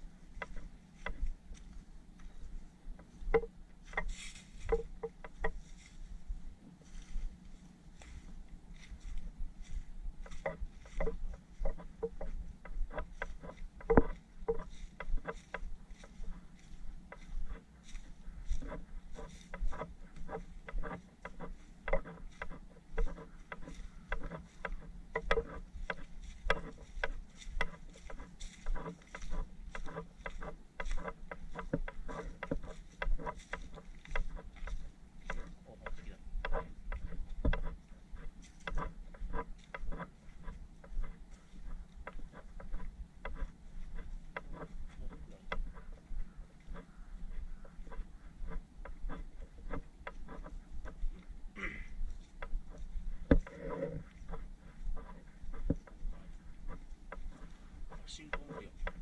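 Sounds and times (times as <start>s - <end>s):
footsteps on dry leaves: 3.8s - 4.9s, 5.5s - 42.0s, 51.0s - 53.4s.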